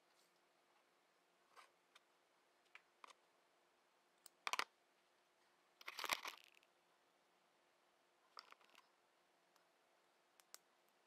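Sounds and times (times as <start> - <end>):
faint clicks: 10.4 - 11.0.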